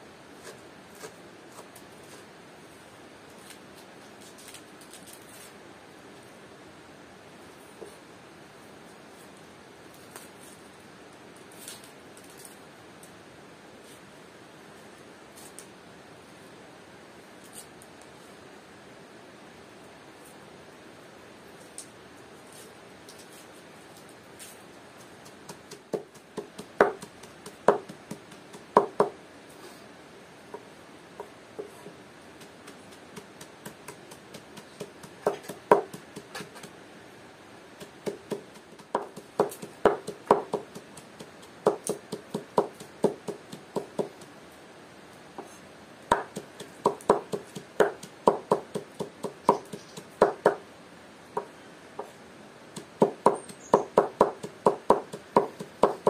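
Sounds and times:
knife chopping on cutting board: 25.7s - 29.1s.

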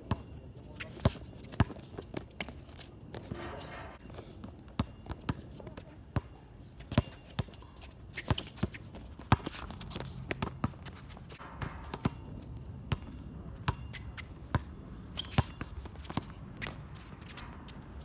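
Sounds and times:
basketball bouncing on hard court: 11.4s - 14.7s.

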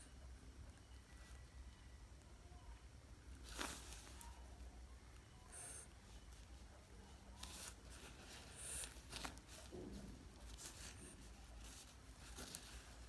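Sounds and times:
low steady hum: 0.0s - 13.0s
hand rustling on cloth: 3.4s - 4.4s.

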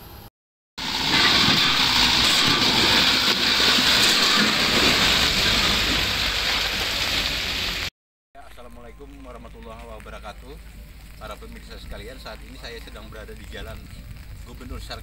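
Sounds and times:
loud even rushing noise: 0.8s - 7.9s
truck engine running: 0.8s - 7.9s.

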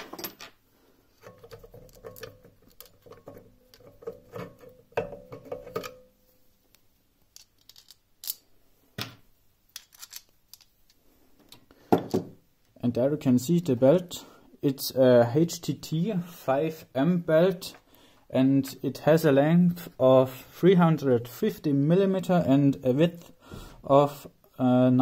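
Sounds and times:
clicks taps and scraping of cover: 1.2s - 6.0s.

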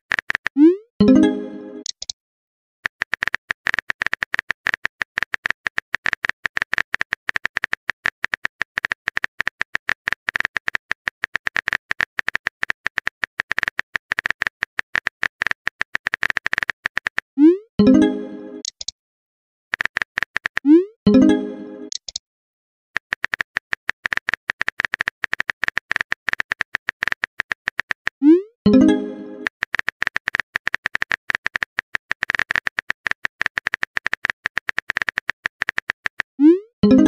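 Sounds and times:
phone keyboard clicks: 2.8s - 17.3s, 19.7s - 20.7s, 23.0s - 28.1s, 29.4s - 36.3s.

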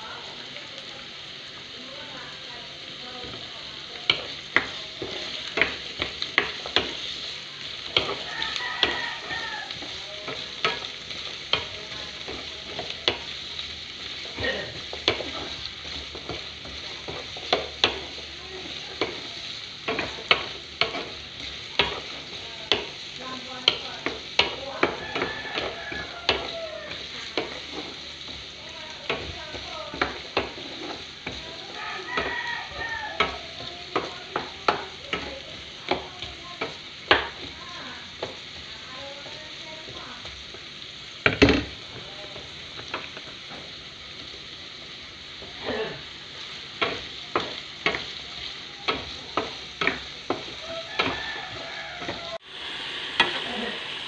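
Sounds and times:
vegetables sizzling in oil: 0.0s - 54.0s
wooden spoon scraping a pan: 14.0s - 37.6s, 45.5s - 52.5s.

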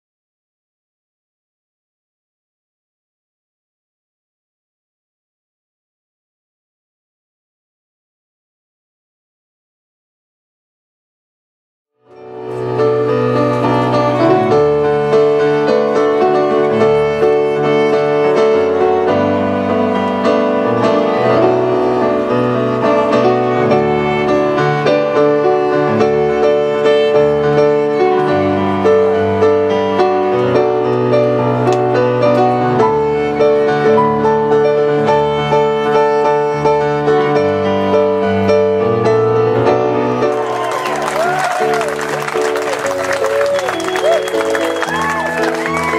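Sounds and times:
keyboard chords and bass: 12.1s - 45.9s
violin melody: 12.1s - 45.9s.

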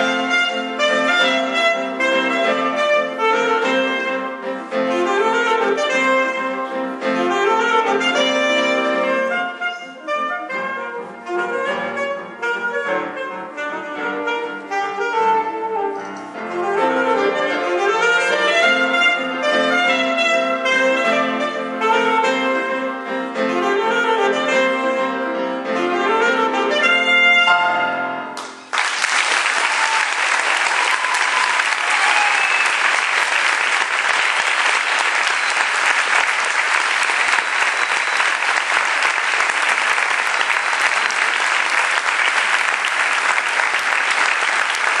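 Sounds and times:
saxophone: 0.0s - 28.4s
grand piano: 0.0s - 28.8s
audience applause: 28.4s - 45.0s.

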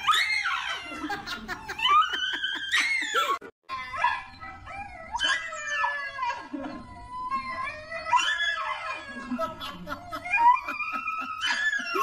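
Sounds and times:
dog screaming: 0.0s - 4.4s.

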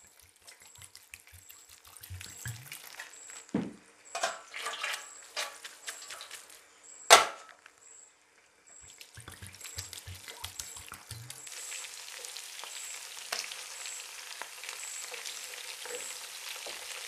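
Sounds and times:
water splashing through mesh strainer: 0.0s - 3.5s, 8.8s - 11.8s
water poured from bottle: 0.0s - 3.6s, 8.8s - 11.8s
metal strainer clank: 4.2s - 6.3s.

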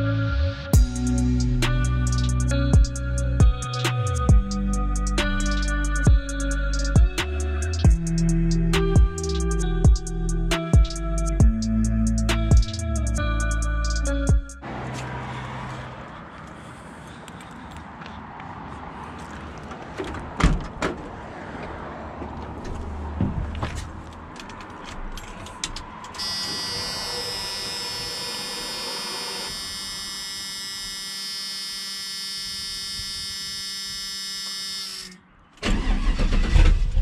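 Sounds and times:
steady electric whine: 26.2s - 35.2s
engine cranking and starting: 34.8s - 37.0s.

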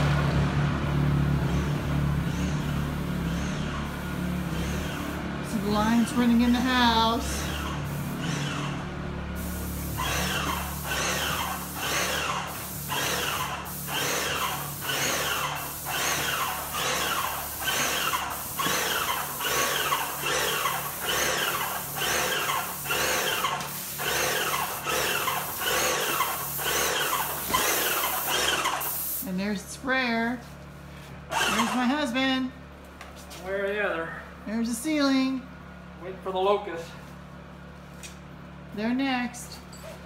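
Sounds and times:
generator hum: 0.0s - 40.0s
paint sprayer pump whining: 1.4s - 29.2s, 31.3s - 32.1s.

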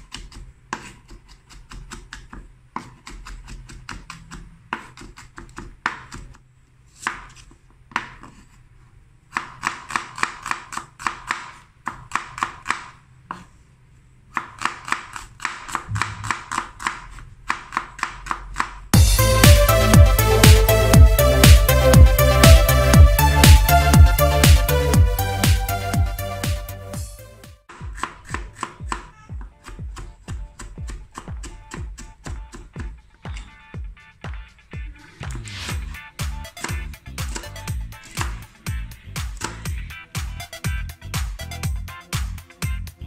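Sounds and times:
knife chopping on wooden board: 0.0s - 6.4s, 9.3s - 13.5s, 14.3s - 18.8s, 27.7s - 32.9s, 39.2s - 39.7s
electronic music: 19.0s - 27.7s, 33.7s - 43.0s.

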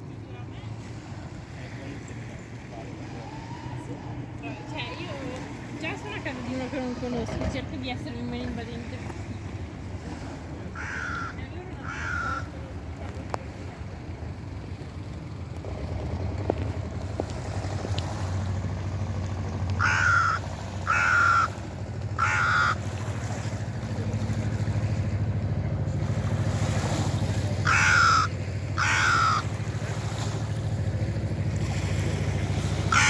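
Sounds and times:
crow cawing: 10.7s - 12.5s, 19.8s - 22.9s, 27.6s - 29.7s.

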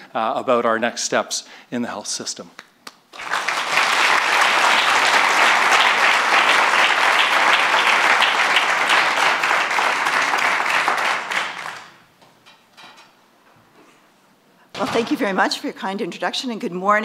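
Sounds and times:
audience applauding: 3.1s - 12.0s.

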